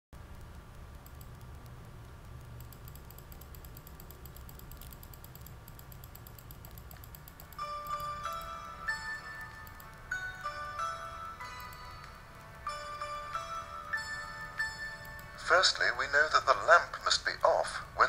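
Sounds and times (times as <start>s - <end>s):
rapid light clicking: 0.2s - 15.8s
low steady hum: 0.2s - 18.0s
bright chime-like musical notes: 7.6s - 16.0s.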